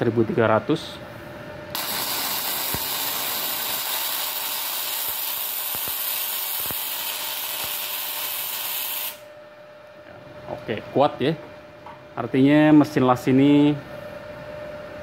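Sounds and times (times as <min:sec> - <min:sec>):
welding arc crackling and hissing: 0:01.7 - 0:09.3.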